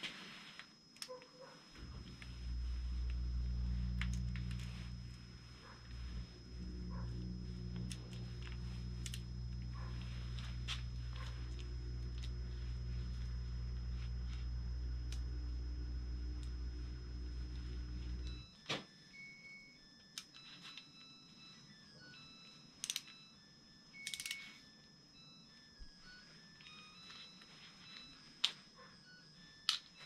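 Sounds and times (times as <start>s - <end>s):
low machine hum: 0.8s - 18.6s.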